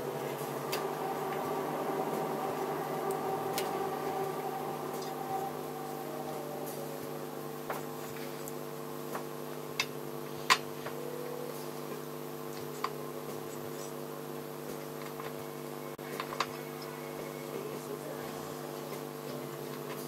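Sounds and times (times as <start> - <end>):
steady electrical hum: 0.0 - 20.0.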